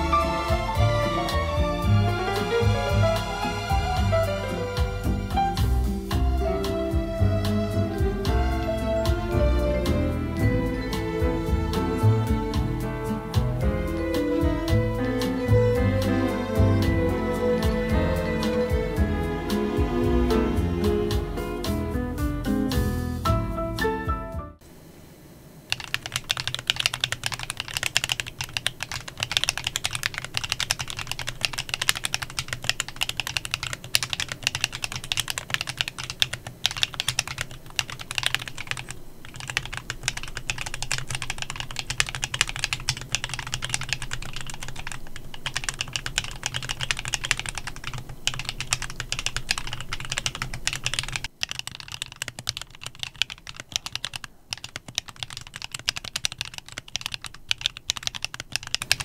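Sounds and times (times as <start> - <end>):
mechanical keyboard typing: 25.7 - 59.0.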